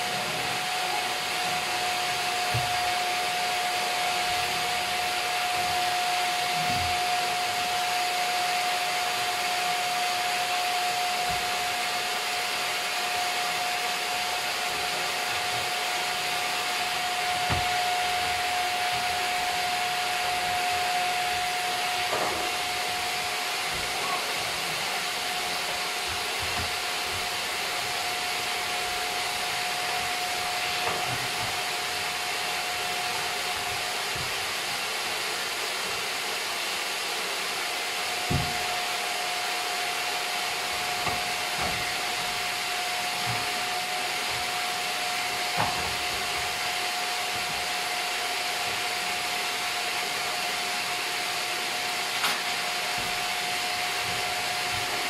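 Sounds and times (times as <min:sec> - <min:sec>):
vacuum cleaner running: 0:00.0 - 0:55.0
vacuum knocking on floor: 0:02.2 - 0:03.0, 0:05.3 - 0:07.3, 0:17.2 - 0:19.4, 0:20.1 - 0:32.0, 0:33.5 - 0:34.5, 0:38.2 - 0:38.8, 0:40.7 - 0:47.7, 0:52.1 - 0:55.0.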